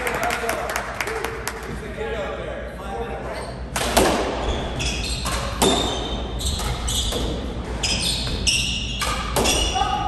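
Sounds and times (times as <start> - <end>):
shoes squeaking on floor: 4.4 - 9.8.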